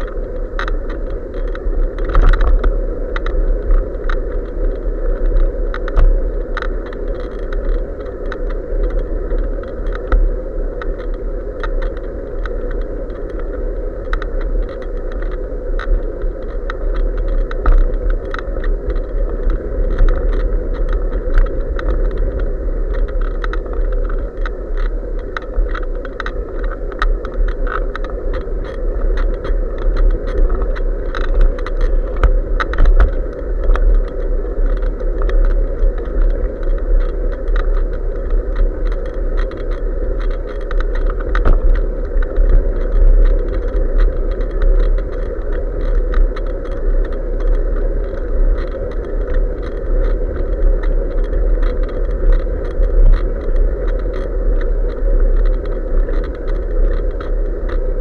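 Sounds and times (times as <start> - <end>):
wind and road noise: 0.0 - 58.0
clicks and rattles from bike: 14.1 - 57.9.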